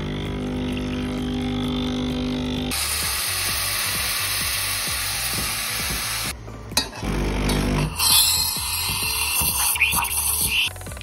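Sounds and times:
espresso machine pump humming: 0:00.0 - 0:02.8
steam wand hissing: 0:07.9 - 0:10.7.

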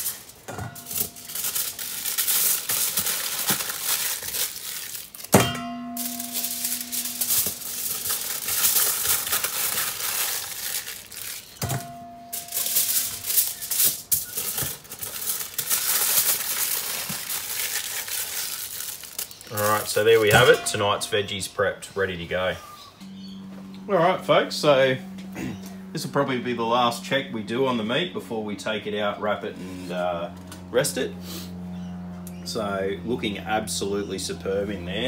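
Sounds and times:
aluminium foil crinkling: 0:00.0 - 0:21.4
sharp ringing metallic knocks: 0:05.4 - 0:07.7, 0:20.4 - 0:21.5.

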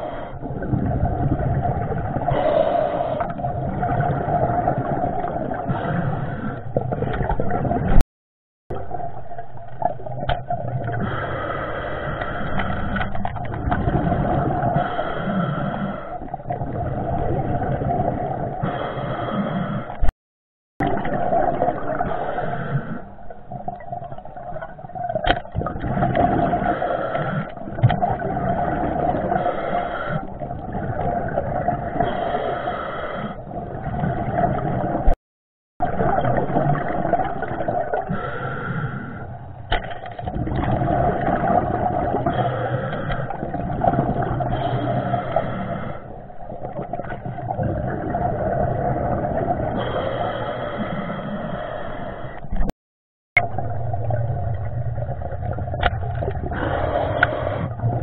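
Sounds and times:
underwater churning rush: 0:00.0 - 0:08.0, 0:08.7 - 0:20.1, 0:20.8 - 0:35.2, 0:35.8 - 0:52.7, 0:53.4 - 0:58.0.

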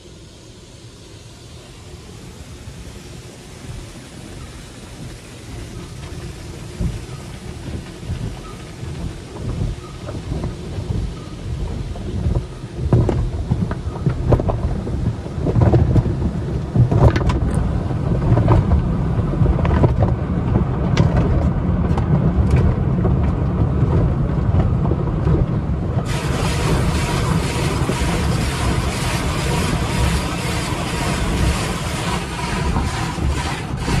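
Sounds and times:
steady hiss: 0:00.0 - 0:15.4, 0:26.1 - 0:34.0
water rumbling on car roof: 0:03.0 - 0:34.0.

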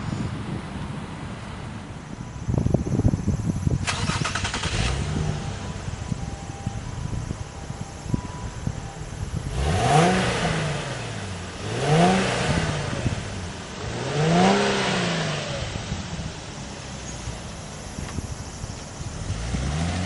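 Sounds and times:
car engine revving: 0:03.9 - 0:05.9, 0:09.3 - 0:17.9, 0:19.0 - 0:20.0.

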